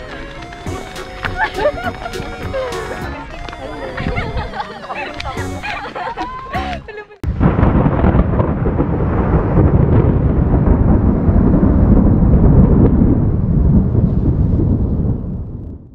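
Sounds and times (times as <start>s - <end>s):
loud low rumble: 7.2s - 15.9s.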